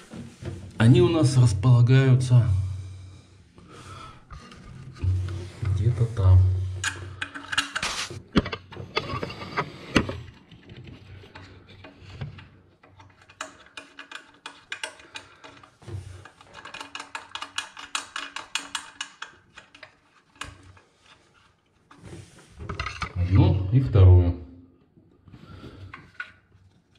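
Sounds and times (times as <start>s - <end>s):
bushing being screwed in clicking: 6.8s - 23.2s.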